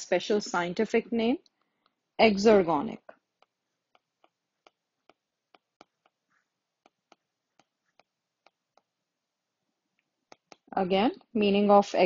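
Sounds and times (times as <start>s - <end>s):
stylus tapping on tablet screen: 1.5s - 9.2s, 10.0s - 11.6s.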